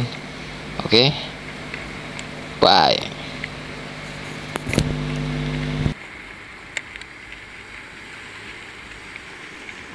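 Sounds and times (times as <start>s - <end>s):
background rush: 0.0s - 6.6s
held tone with overtones: 0.2s - 6.0s.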